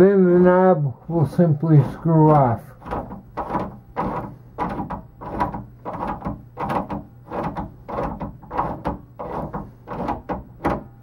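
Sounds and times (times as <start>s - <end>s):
doorknob scraping as turned: 2.3s - 11.0s.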